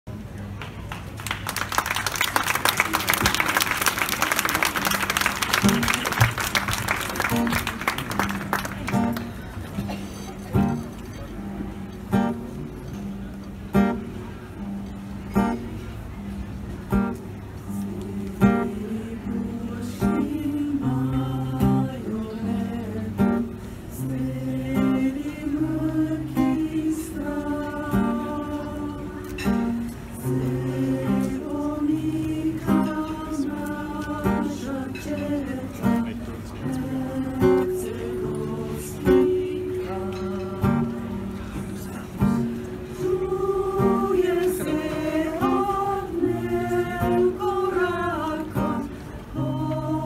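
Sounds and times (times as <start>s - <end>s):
audience applause: 0.5s - 9.8s
acoustic guitar low notes: 4.6s - 50.0s
mixed choir singing: 17.7s - 50.0s.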